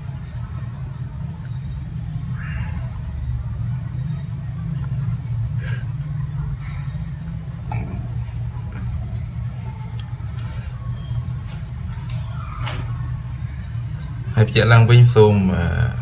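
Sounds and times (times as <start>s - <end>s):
pencil scratching on paper: 2.2s - 10.4s.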